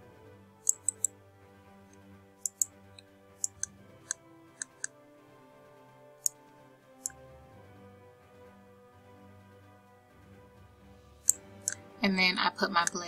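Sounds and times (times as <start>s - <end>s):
quiet background music: 0.0s - 13.0s
computer mouse clicking: 0.6s - 1.1s, 2.4s - 2.8s, 3.4s - 5.0s, 11.2s - 11.8s.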